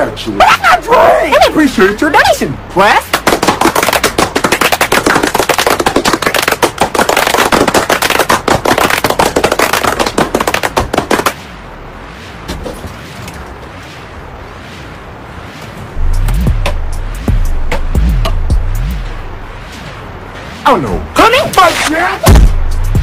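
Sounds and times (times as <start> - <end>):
hands clapping: 3.0 - 11.4.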